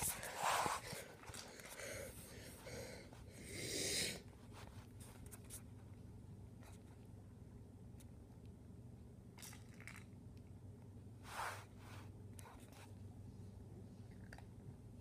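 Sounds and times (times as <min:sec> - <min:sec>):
cat sniffing: 0:00.0 - 0:05.3.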